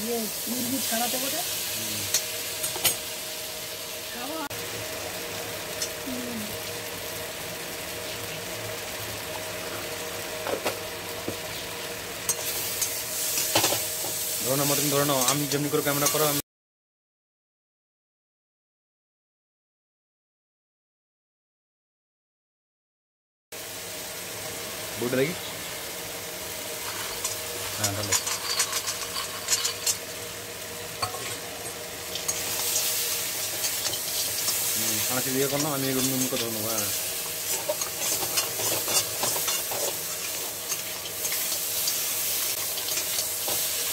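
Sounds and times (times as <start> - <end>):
potatoes sizzling in oil: 0.0 - 16.4, 23.6 - 43.9
metal spatula scraping a pan: 26.8 - 30.0, 37.5 - 41.5.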